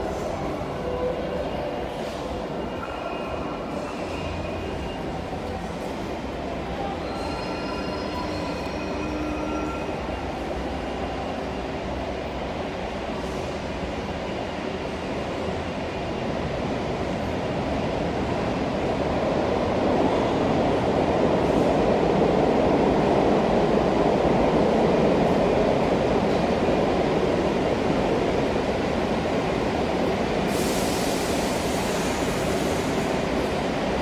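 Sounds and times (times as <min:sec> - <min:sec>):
subway train rumble: 0:00.0 - 0:34.0
hiss: 0:30.4 - 0:33.4.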